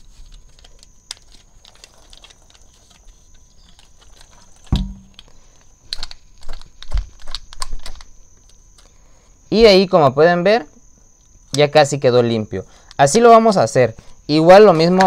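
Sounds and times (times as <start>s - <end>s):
heavier knock: 4.8s - 5.1s.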